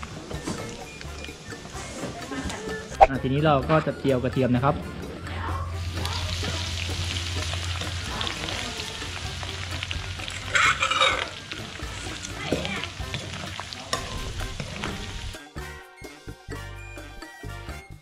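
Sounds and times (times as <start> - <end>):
garlic sizzling in hot oil: 0.0 - 3.1, 5.7 - 15.4
metal ladle stirring in wok: 10.2 - 12.3.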